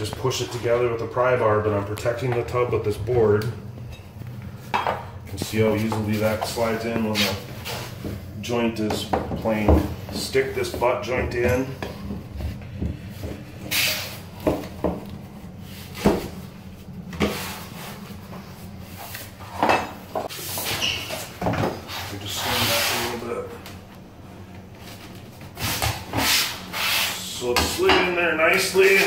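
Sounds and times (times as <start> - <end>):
scraping rub: 21.8 - 23.2.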